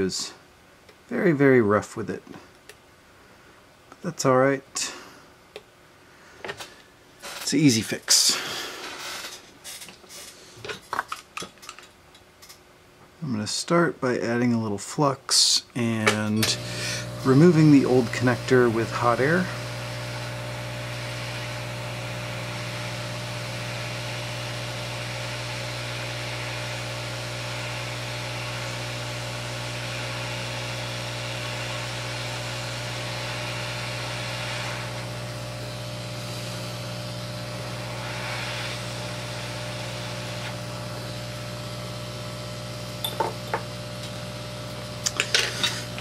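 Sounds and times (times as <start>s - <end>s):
hot air station blowing: 16.4s - 46.0s.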